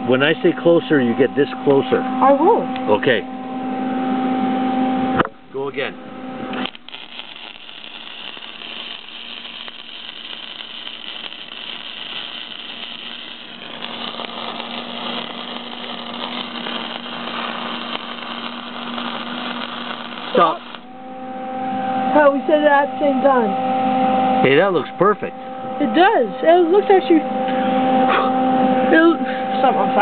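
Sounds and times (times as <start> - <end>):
steady low hum: 0.0 - 30.0
welding arc crackling hiss: 6.5 - 20.9.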